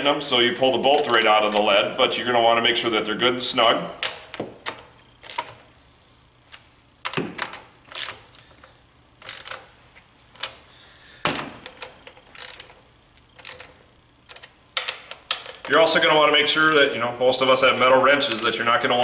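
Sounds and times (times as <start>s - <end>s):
wrench clicking on bolts: 4.0s - 5.6s, 7.0s - 8.2s, 9.2s - 9.6s, 11.6s - 15.7s.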